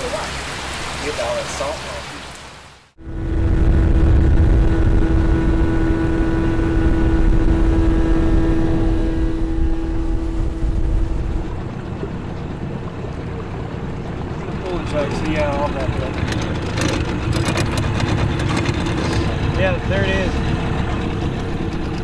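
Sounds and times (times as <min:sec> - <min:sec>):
outboard motor running: 0:03.0 - 0:22.0.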